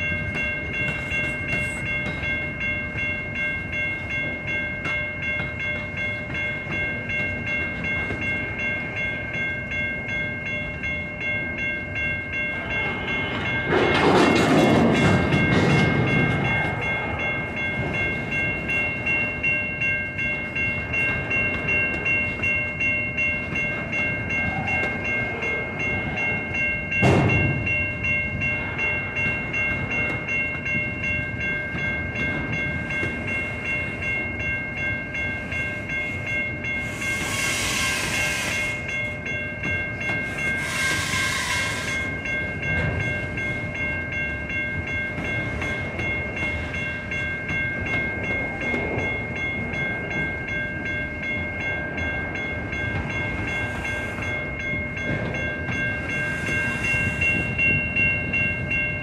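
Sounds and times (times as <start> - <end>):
train wheels clattering over rails: 12.4 - 35.0, 35.6 - 59.0.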